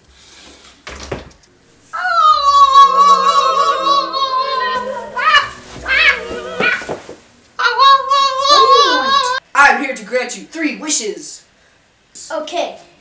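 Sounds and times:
person wailing: 0:01.9 - 0:09.4
short rustle: 0:04.8 - 0:07.4.

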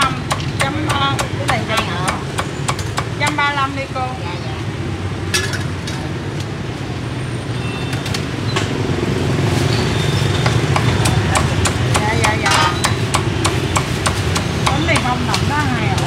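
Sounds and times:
traffic hum: 0:00.0 - 0:16.0.

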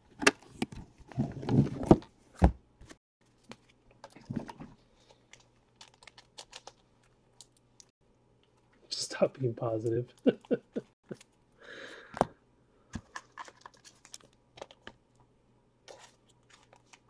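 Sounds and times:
shrink-wrap crinkling: 0:03.4 - 0:07.9.

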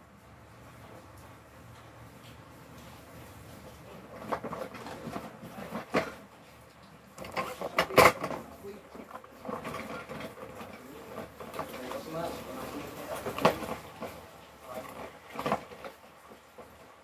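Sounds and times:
cardboard rustling and scraping: 0:02.9 - 0:06.6, 0:07.2 - 0:17.0.

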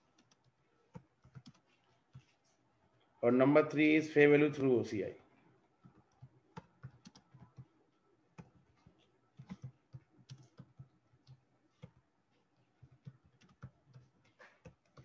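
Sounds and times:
keyboard keys clicking: 0:00.1 - 0:01.6, 0:05.9 - 0:07.7, 0:08.4 - 0:12.0, 0:12.8 - 0:15.0.

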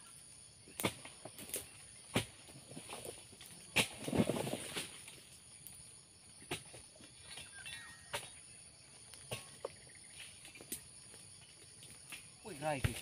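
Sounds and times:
chisel knocking palm stalks: 0:12.8 - 0:13.0.

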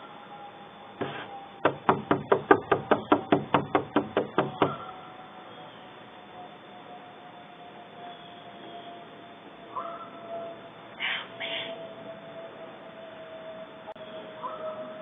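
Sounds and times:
rapid sharp knocks: 0:01.0 - 0:04.8.

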